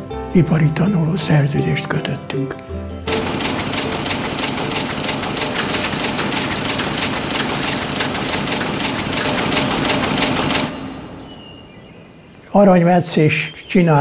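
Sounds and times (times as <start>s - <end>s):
sewing machine rapid clicking: 3.1s - 10.7s.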